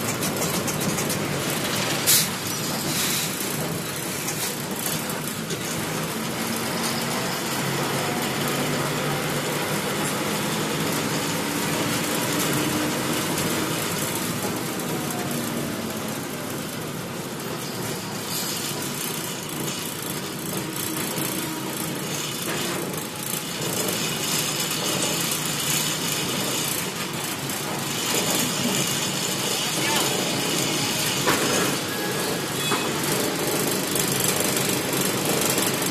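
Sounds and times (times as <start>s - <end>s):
bus engine hum: 0.0s - 35.9s
road noise: 0.0s - 35.9s.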